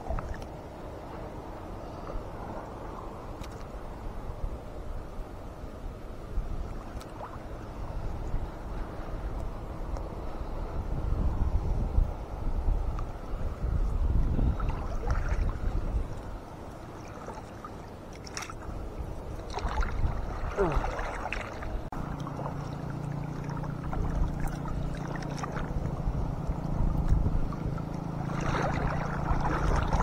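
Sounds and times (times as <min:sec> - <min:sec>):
sea water sloshing and splashing: 0:00.0 - 0:04.2, 0:06.5 - 0:09.0, 0:13.8 - 0:30.0
wind rumble on microphone: 0:00.0 - 0:30.0.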